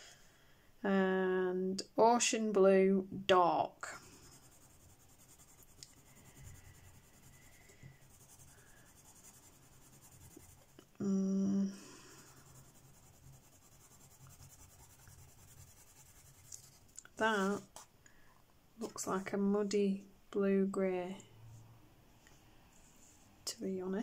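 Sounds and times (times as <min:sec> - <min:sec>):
pencil scratching on paper: 0:04.0 - 0:10.9, 0:11.8 - 0:17.8
person humming: 0:11.0 - 0:12.1.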